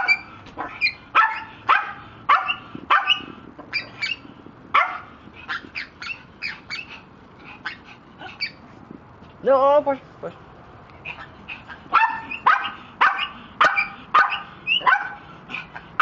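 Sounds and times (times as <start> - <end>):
dog barking: 0.0 - 4.2, 4.8 - 6.8, 11.9 - 15.3.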